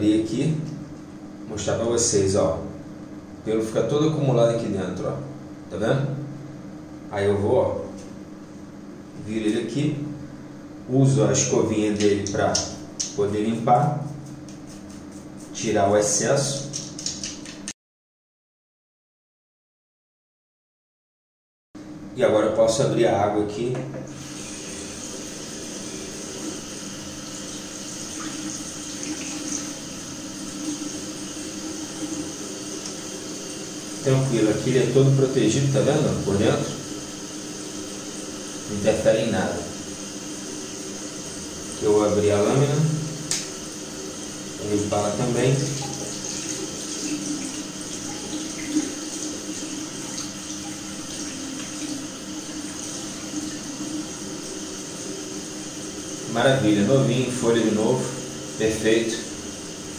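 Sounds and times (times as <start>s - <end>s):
water running from tap: 11.9s - 17.7s, 24.1s - 59.9s
tap running into sink: 16.6s - 17.7s.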